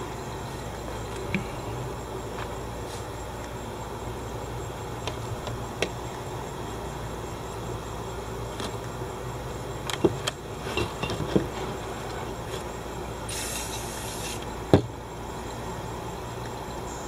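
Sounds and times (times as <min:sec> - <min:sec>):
spray paint can hissing: 0:13.3 - 0:14.5.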